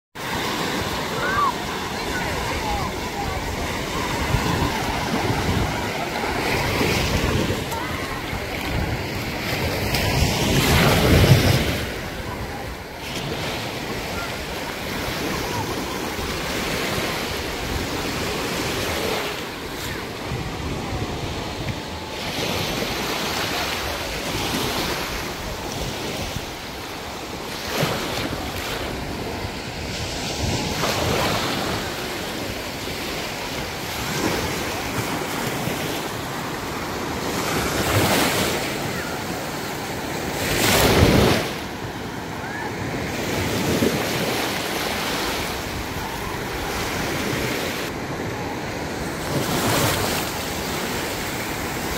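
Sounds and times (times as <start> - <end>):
small waves lapping on sand: 0.2 - 51.9
wind buffeting microphone: 0.4 - 18.6.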